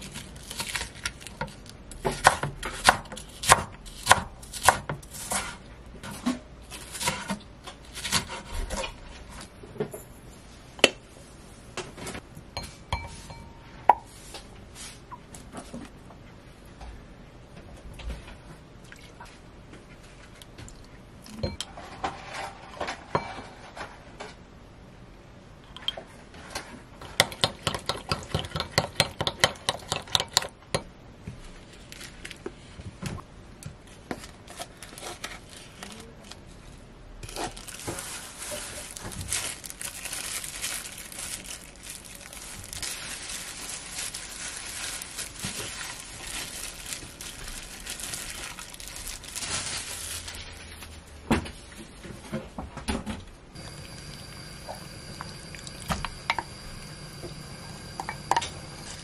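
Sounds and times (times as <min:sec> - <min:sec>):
plastic glove crinkling: 0:00.0 - 0:01.9, 0:31.5 - 0:32.8, 0:33.8 - 0:51.1.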